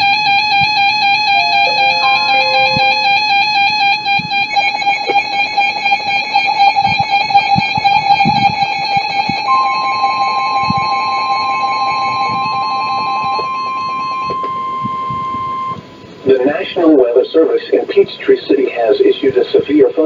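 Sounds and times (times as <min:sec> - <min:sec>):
electronic alarm tones: 0:01.2 - 0:03.9.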